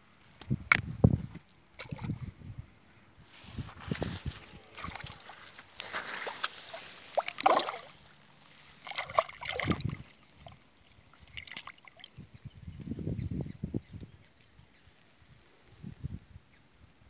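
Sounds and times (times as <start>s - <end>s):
water sloshing and splashing: 4.0s - 12.3s.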